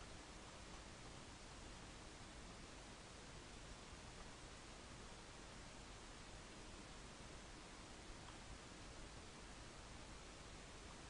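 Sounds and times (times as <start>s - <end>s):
faint hiss: 0.0s - 11.0s
faint tick: 8.2s - 8.4s.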